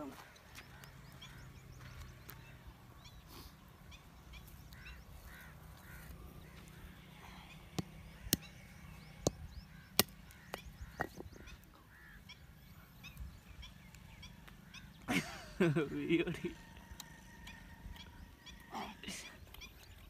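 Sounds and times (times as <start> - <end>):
birds calling: 0.0 - 20.0
brick knocking on hard object: 11.0 - 11.3.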